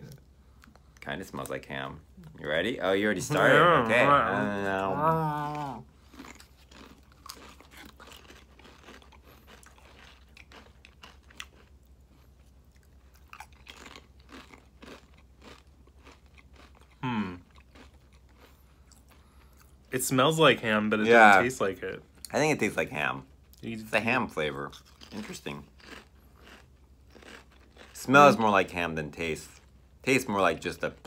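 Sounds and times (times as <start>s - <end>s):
person humming briefly: 4.1s - 5.8s
crisps crunched and chewed: 5.5s - 19.6s, 24.7s - 28.4s.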